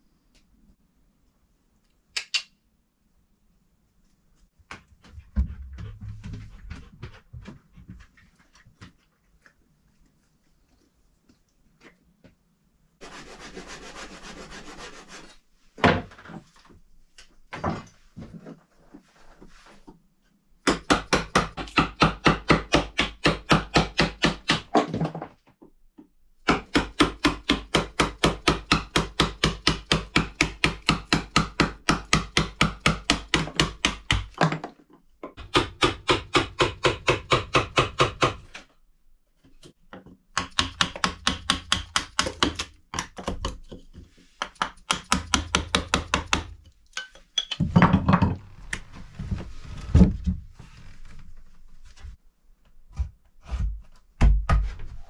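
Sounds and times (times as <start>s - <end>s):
hammer tapping a chisel into wood: 40.3s - 43.8s, 44.4s - 46.5s.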